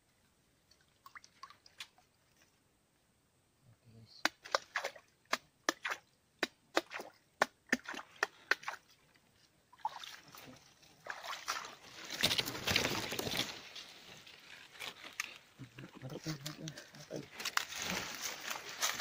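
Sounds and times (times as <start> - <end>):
water sloshing and splashing: 9.7 - 14.9.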